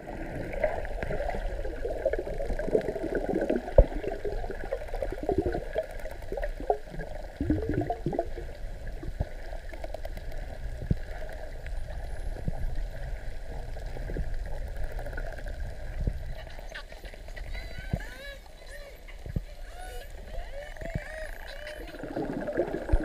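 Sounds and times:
underwater gurgling and rushing: 0:00.0 - 0:23.0
faint clicks: 0:09.2 - 0:12.7.

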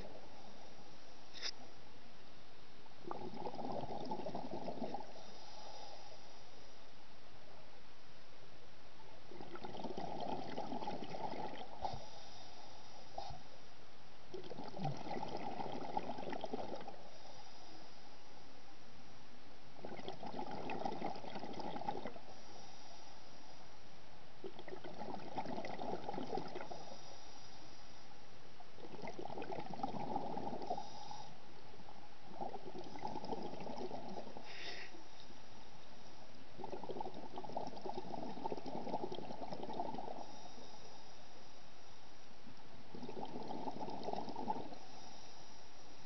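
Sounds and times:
diver exhaling bubbles underwater: 0:03.1 - 0:05.4, 0:09.3 - 0:12.1, 0:14.3 - 0:17.1, 0:19.8 - 0:22.2, 0:24.4 - 0:26.9, 0:28.8 - 0:31.0, 0:32.3 - 0:34.8, 0:36.6 - 0:40.5, 0:42.9 - 0:44.8.

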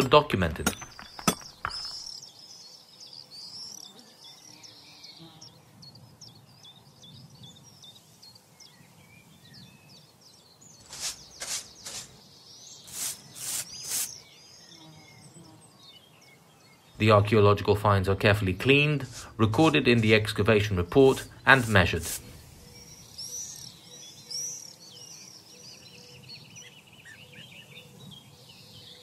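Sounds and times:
birds chirping: 0:00.0 - 0:29.0
short scraping strokes: 0:10.8 - 0:12.2, 0:12.9 - 0:14.2.

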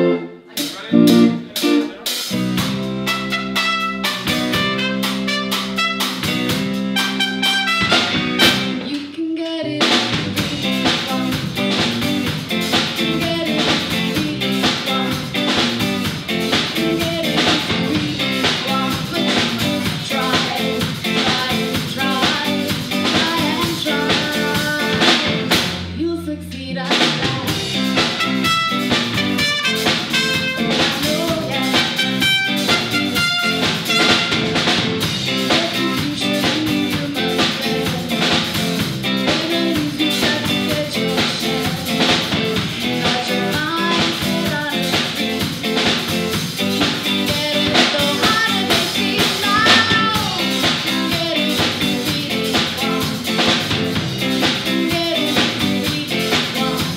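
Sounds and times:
low bass notes: 0:00.0 - 0:08.8, 0:09.8 - 0:44.7
live reggae band: 0:00.0 - 0:56.9
female lead vocal: 0:08.5 - 0:11.9, 0:12.8 - 0:28.0, 0:30.7 - 0:32.5, 0:35.2 - 0:46.0, 0:46.8 - 0:56.9.

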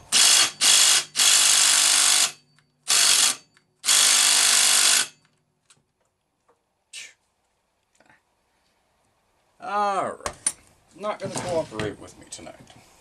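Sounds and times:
impact driver hammering: 0:00.1 - 0:05.2.

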